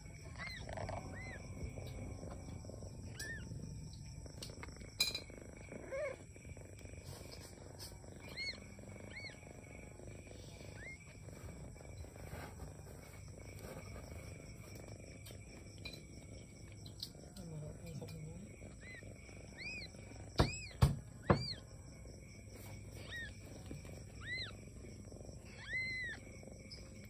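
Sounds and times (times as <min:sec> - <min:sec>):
cat purring: 0:00.0 - 0:27.0
kitten squeaking mews: 0:03.1 - 0:03.5, 0:19.6 - 0:21.6, 0:23.0 - 0:23.4, 0:24.2 - 0:24.6, 0:25.5 - 0:26.2.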